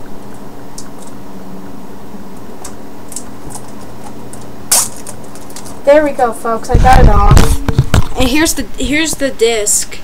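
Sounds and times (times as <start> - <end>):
steady background hum: 0.0 - 10.0
packaging crinkling and clicking: 2.6 - 5.8.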